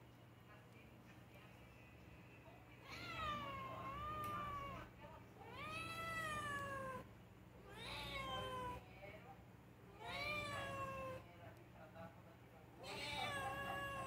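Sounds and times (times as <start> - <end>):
cat meowing: 2.8 - 7.1, 7.7 - 8.8, 9.9 - 11.2, 12.8 - 14.0.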